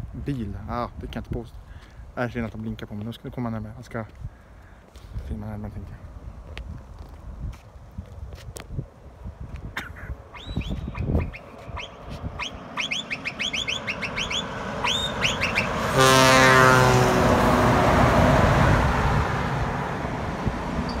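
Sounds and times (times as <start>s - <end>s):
passing truck rush: 10.2s - 21.0s
small birds chirping: 10.3s - 15.8s
truck horn blast: 12.9s - 17.9s.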